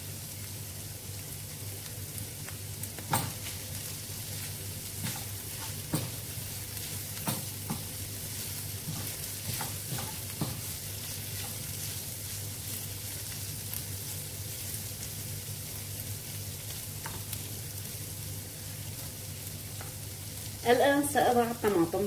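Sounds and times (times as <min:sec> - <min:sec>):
meat and onion sizzling in a pan: 0:00.0 - 0:22.0
wooden spoon scraping a pan: 0:03.2 - 0:13.5
spoon knocking on a pan: 0:05.0 - 0:06.3, 0:07.2 - 0:08.0, 0:08.8 - 0:10.7.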